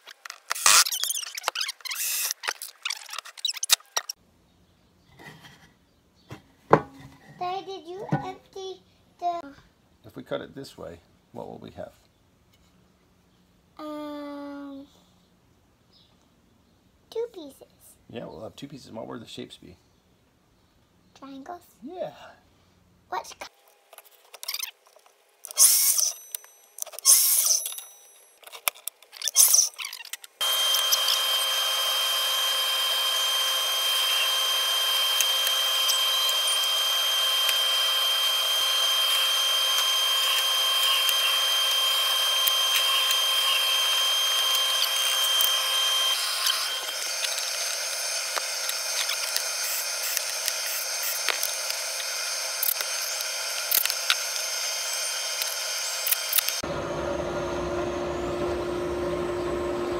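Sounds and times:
power tool motor whining: 0.0 - 4.2, 25.4 - 28.2, 29.3 - 59.9
miter saw cutting plywood: 0.1 - 4.2, 25.5 - 26.4, 29.2 - 59.9.

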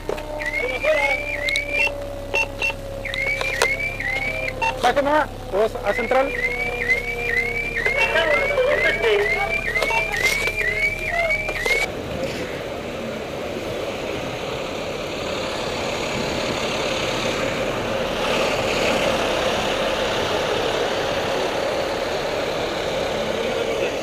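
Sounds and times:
fire engine idling: 0.0 - 11.9, 12.7 - 24.0
fire truck siren whoops: 0.0 - 11.9.

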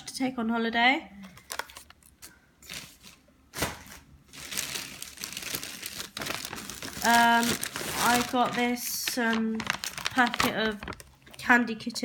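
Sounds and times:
plastic packet crinkling: 4.2 - 11.5.

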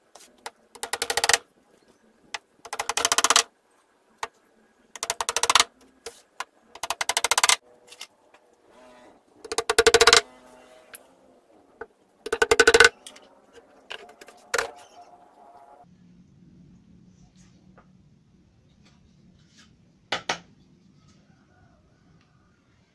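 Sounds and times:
hammer tapping nails into wood: 12.3 - 12.9.

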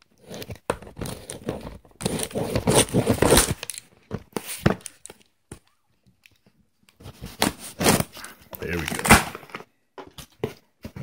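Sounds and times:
cardboard box tearing and rustling: 2.0 - 3.6, 7.3 - 9.5.

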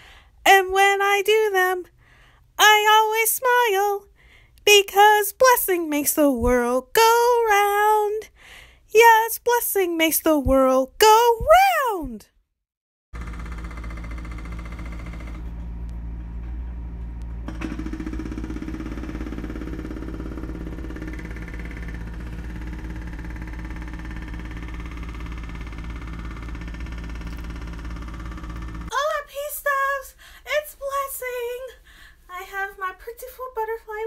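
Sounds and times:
woman speaking: 0.5 - 1.9, 2.6 - 4.1, 4.7 - 8.3, 8.9 - 12.2, 28.9 - 34.0.

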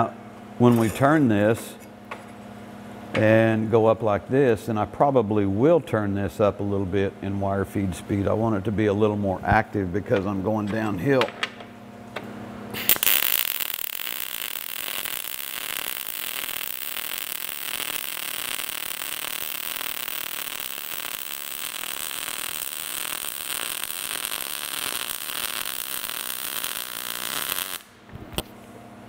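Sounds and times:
welding arc crackling: 12.8 - 28.1.

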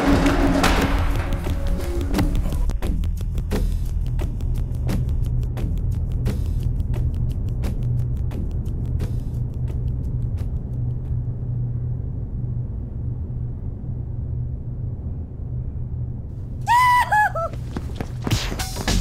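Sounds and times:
low rumbling drone: 6.1 - 16.6.

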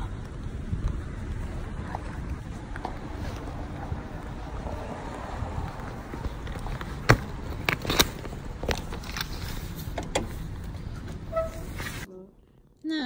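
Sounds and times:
wind rumble and handling noise: 0.0 - 12.8.

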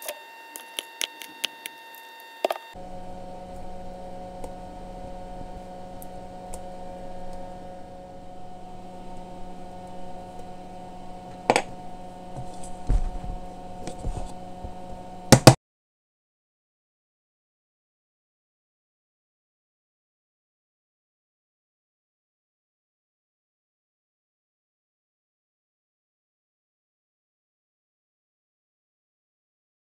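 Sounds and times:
electrical appliance hum: 0.0 - 15.6
sharp knocks: 15.4 - 15.6.

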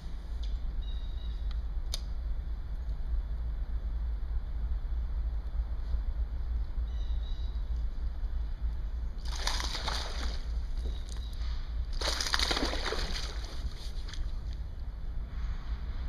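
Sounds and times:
steady low rumble: 0.0 - 16.0
fish splashing at the surface: 9.2 - 10.7, 11.9 - 14.3.

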